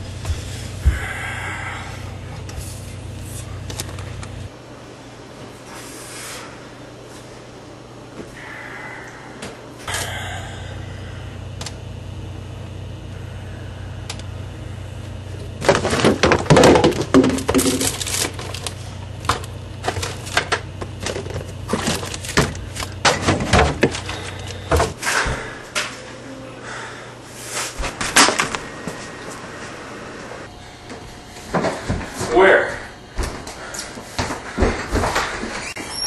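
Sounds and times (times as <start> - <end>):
steady low hum: 0.0 - 36.0
jars and bottles clattering: 15.6 - 18.7.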